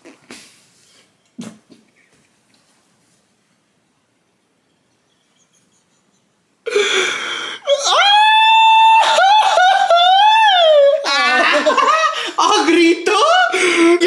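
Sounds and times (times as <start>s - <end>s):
person screaming: 6.7s - 14.0s.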